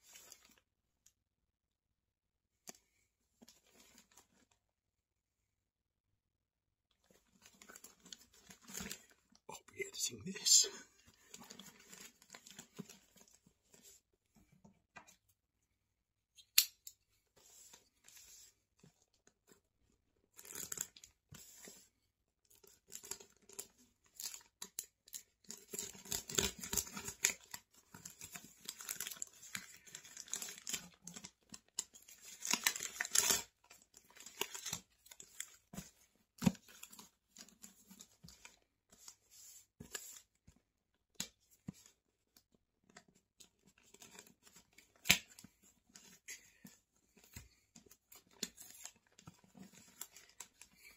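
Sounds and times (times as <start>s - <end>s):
packaging tearing and crinkling: 25.6s - 33.5s.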